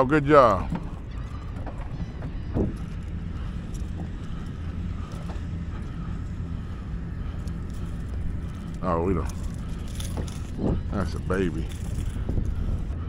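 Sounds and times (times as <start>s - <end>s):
boat motor rumbling: 0.0s - 13.0s
wind on microphone: 0.0s - 13.0s.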